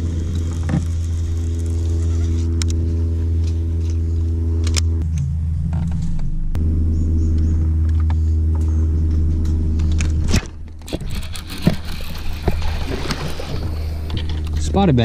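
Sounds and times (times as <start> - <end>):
electric motor humming: 0.0 - 15.0
fishing reel clicks: 10.9 - 12.8
fish splashing: 10.9 - 14.4.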